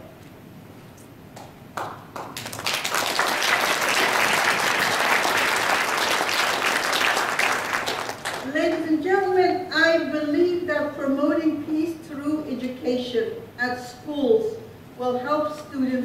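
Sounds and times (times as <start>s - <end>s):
audience applause: 1.8s - 8.5s.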